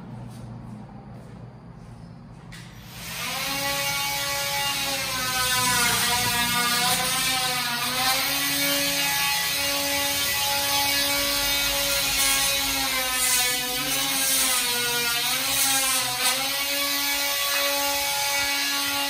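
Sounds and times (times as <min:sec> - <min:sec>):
drill motor whining: 0:02.8 - 0:19.0.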